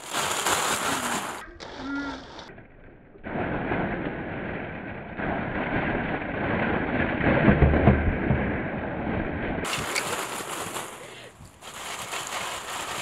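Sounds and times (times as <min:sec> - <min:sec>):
wind noise on microphone: 0:03.2 - 0:10.3.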